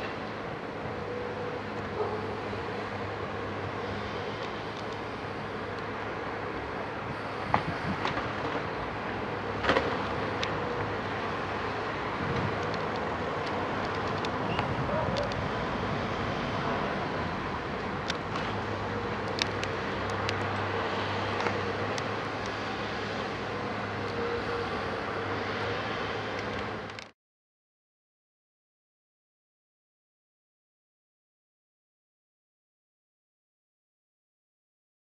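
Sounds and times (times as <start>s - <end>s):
excavator diesel engine running: 0.0s - 26.9s.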